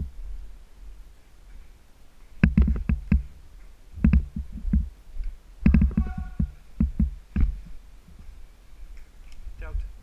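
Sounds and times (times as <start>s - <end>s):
sharp clicks and knocks: 2.2s - 7.7s.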